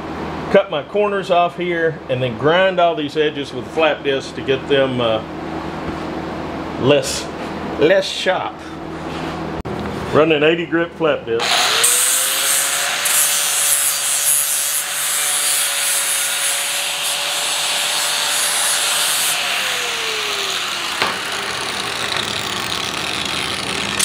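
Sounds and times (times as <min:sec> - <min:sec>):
angle grinder grinding steel: 0:11.4 - 0:24.0.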